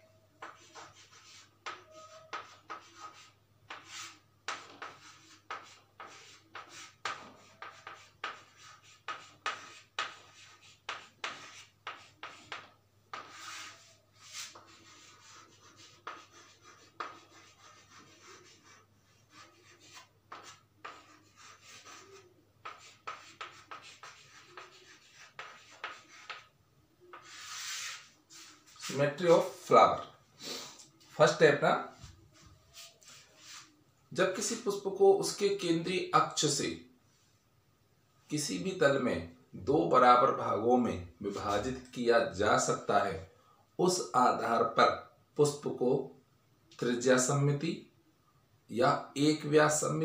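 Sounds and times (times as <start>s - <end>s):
chalk writing on a chalkboard: 0.4s - 26.5s, 27.1s - 29.4s, 32.7s - 33.8s.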